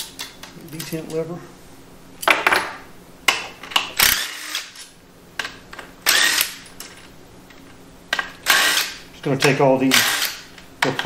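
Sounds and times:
cordless drill running: 0:06.1 - 0:06.6, 0:08.4 - 0:09.0, 0:09.9 - 0:10.5.

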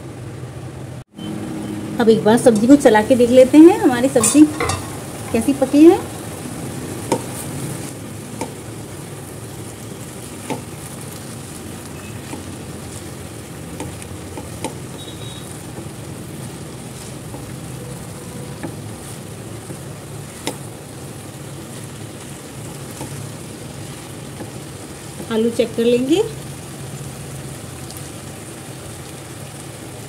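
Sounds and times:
vegetables sizzling in a pan: 0:00.0 - 0:30.0
spatula tapping a pan: 0:07.0 - 0:07.4, 0:08.4 - 0:08.6, 0:10.4 - 0:10.9, 0:12.2 - 0:12.5, 0:13.7 - 0:16.0, 0:17.0 - 0:20.7, 0:22.6 - 0:23.2, 0:24.3 - 0:25.3.

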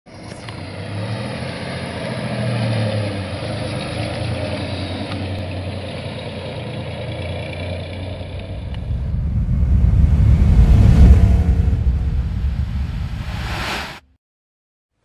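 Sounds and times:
truck engine running at low revs: 0:02.8 - 0:13.4.

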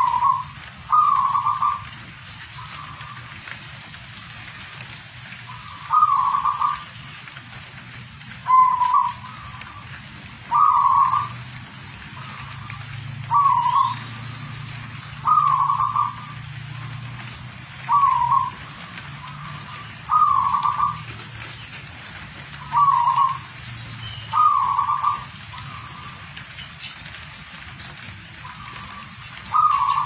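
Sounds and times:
dove cooing: 0:00.0 - 0:03.4, 0:05.5 - 0:06.9, 0:08.4 - 0:11.4, 0:12.2 - 0:14.2, 0:15.2 - 0:17.1, 0:17.8 - 0:21.3, 0:22.6 - 0:23.5, 0:24.3 - 0:26.2, 0:28.4 - 0:30.0.

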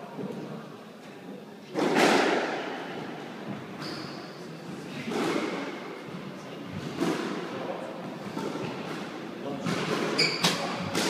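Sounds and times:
squash ball hit by racket: 0:01.8 - 0:02.7, 0:09.6 - 0:11.0
high squeak: 0:10.2 - 0:10.6.

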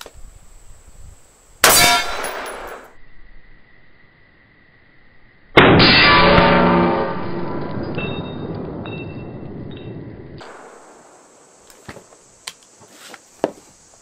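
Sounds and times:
rifle shots: 0:01.6 - 0:02.9.

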